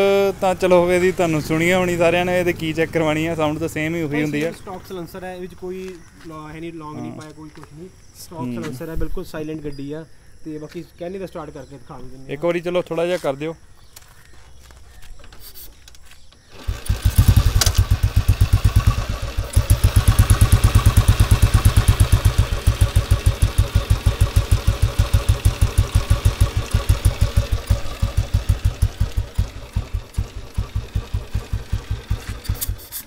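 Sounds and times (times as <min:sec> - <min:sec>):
motorcycle engine starting and idling: 0:00.0 - 0:05.4, 0:16.4 - 0:33.0.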